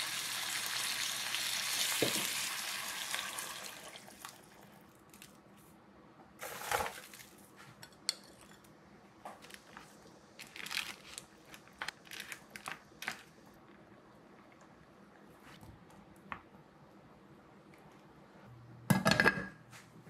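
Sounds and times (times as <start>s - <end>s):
food sizzling in a pan: 0.0s - 4.3s
dishes and utensils clattering: 18.9s - 19.6s.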